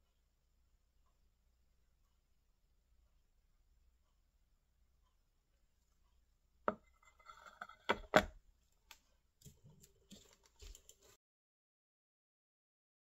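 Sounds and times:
rustling: 0:08.7 - 0:11.2.

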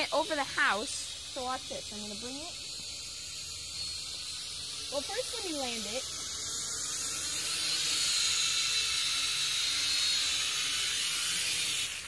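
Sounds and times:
toy drone propellers whirring: 0:00.0 - 0:12.0.

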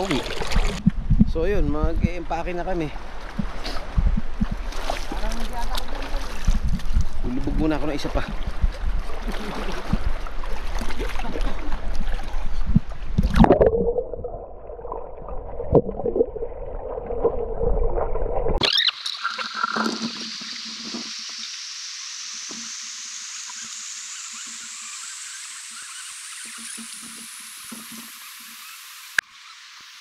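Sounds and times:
river water splashing: 0:00.0 - 0:00.8, 0:03.0 - 0:29.6
steady hiss: 0:18.9 - 0:30.0.

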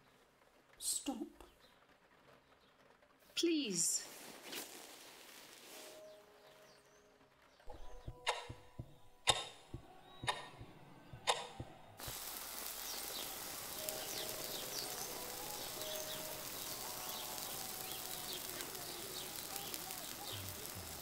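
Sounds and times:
outdoor hiss: 0:00.0 - 0:21.0
faint birds chirping: 0:05.8 - 0:21.0
clock ticking: 0:08.0 - 0:11.8.

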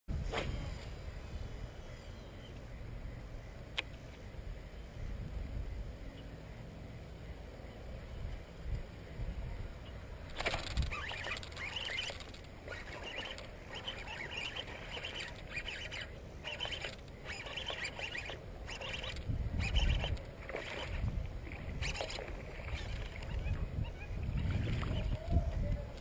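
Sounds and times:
fishing rod and reel rustling: 0:10.2 - 0:26.0.

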